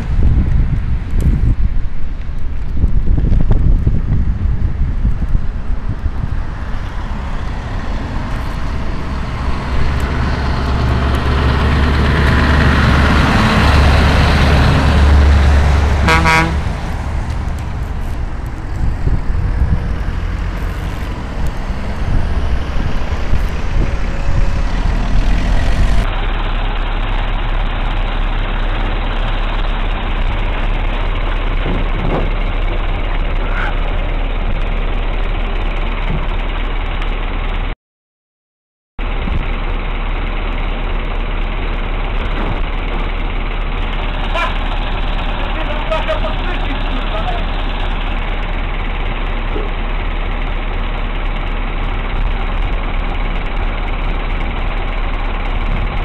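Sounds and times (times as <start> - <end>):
low engine hum: 0.0 - 37.8, 39.0 - 56.0
diesel truck driving past: 3.8 - 37.8, 39.0 - 56.0
truck horn blast: 14.7 - 17.0.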